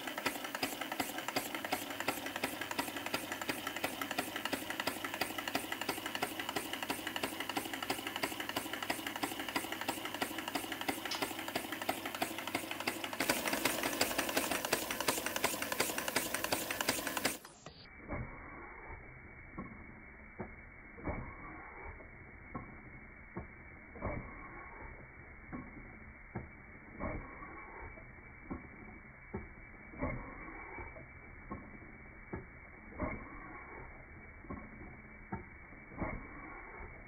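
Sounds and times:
compressed-air engine puffing: 0.0 - 19.1, 21.0 - 22.0, 24.0 - 25.0, 30.0 - 31.7, 32.9 - 34.7, 35.9 - 37.0.

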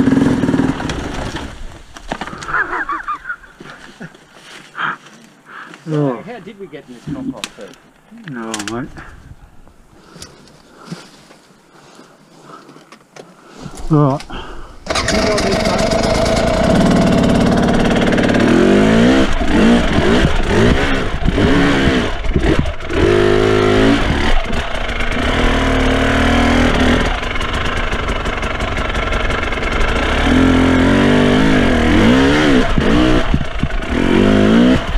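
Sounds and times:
dirt bike engine revving: 0.0 - 1.4, 14.8 - 34.9.

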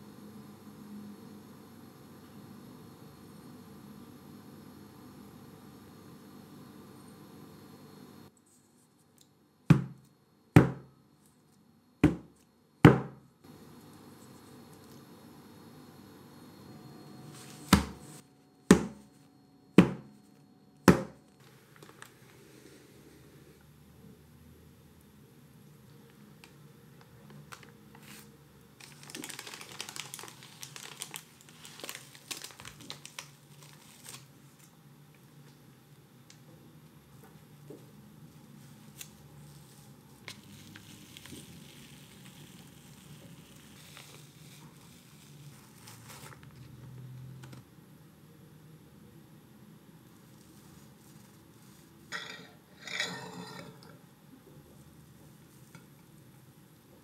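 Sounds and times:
parchment paper crinkling: 27.3 - 34.7, 38.4 - 46.8, 50.1 - 52.1.

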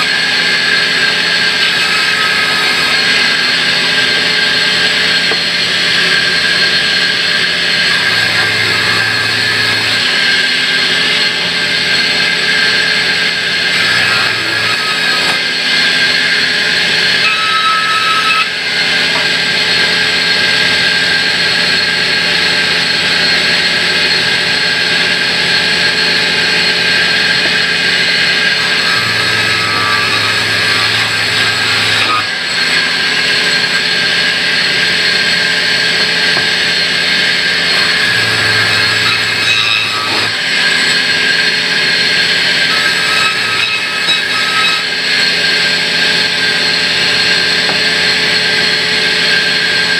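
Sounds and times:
band saw cutting log: 0.0 - 49.9.

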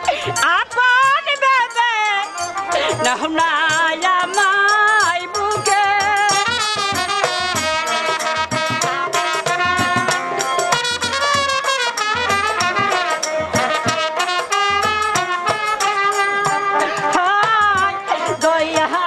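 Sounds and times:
instrumental folk melody over beat: 0.0 - 19.0.

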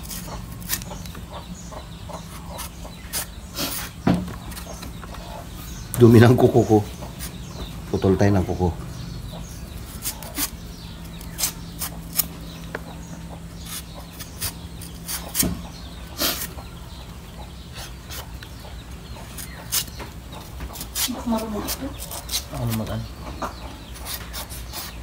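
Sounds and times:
cleaver scraping mango skin: 0.0 - 5.2, 5.9 - 7.5, 9.6 - 12.8, 13.6 - 16.6, 17.7 - 18.5, 19.2 - 25.0.

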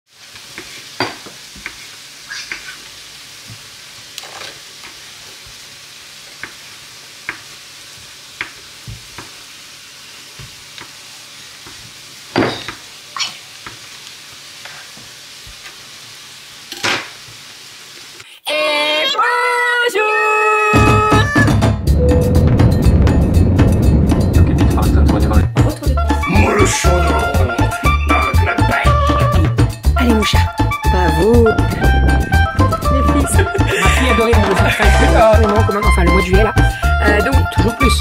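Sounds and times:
steady low hiss: 21.9 - 38.0.

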